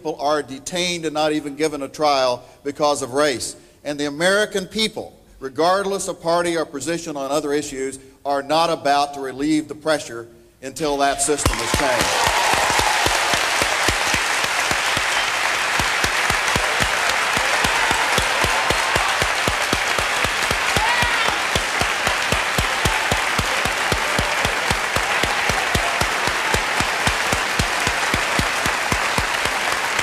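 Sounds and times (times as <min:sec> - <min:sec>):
large audience applauding: 0:11.4 - 0:30.0.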